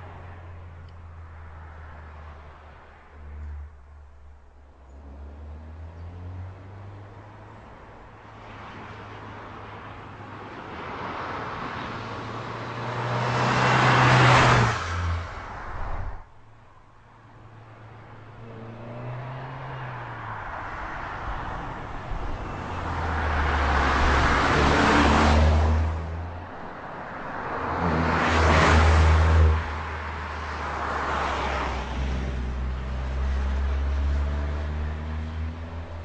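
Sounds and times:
car passing by: 8.4s - 16.2s, 18.2s - 36.0s.

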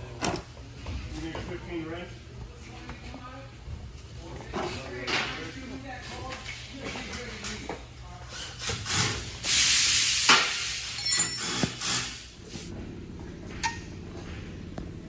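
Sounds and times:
sharp metal clinks: 11.0s - 11.6s.

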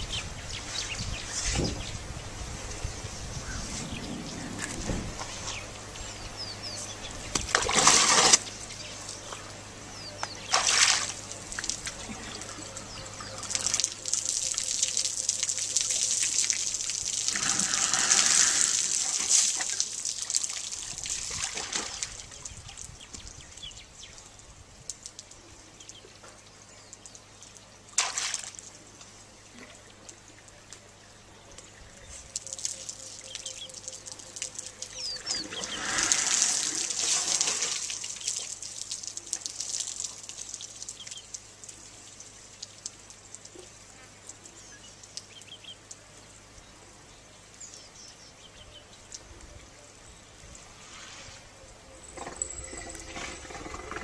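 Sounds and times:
water trickling and splashing: 3.4s - 31.0s, 32.1s - 46.2s.

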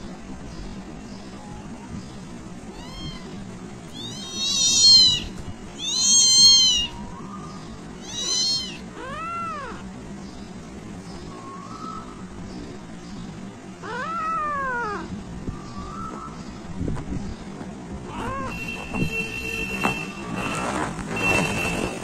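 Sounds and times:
kitten mewing: 2.6s - 7.1s, 8.0s - 9.9s, 13.8s - 15.1s, 18.1s - 18.6s.

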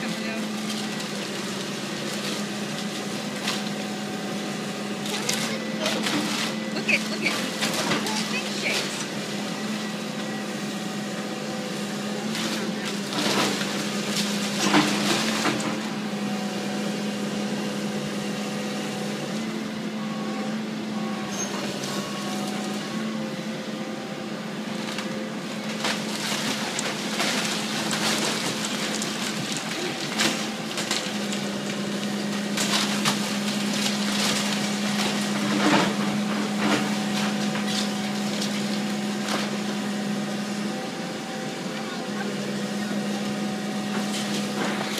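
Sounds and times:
wood cracking and crunching: 24.8s - 39.8s.

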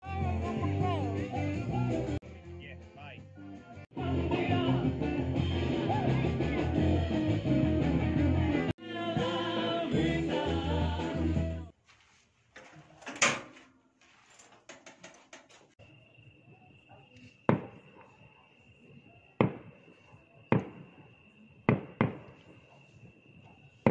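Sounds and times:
clicks and knocks: 14.4s - 15.8s
high insect trill: 15.7s - 21.6s
distant fireworks bangs: 17.4s - 18.0s, 19.4s - 21.0s, 21.7s - 22.6s.

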